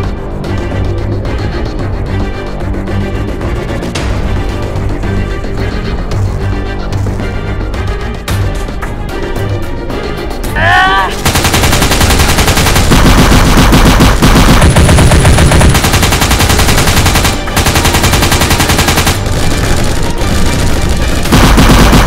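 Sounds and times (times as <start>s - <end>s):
machine-gun bursts: 11.2s - 22.0s.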